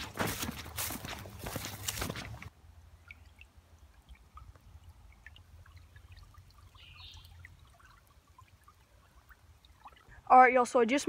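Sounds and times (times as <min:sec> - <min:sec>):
footsteps crunching dry grass: 0:00.0 - 0:02.5
creek trickling: 0:00.0 - 0:11.0
small water drips: 0:00.8 - 0:10.7.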